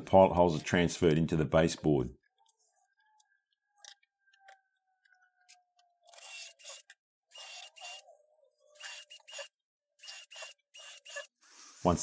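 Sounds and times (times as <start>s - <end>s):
cordless drill whining: 5.8s - 8.1s, 8.7s - 11.8s.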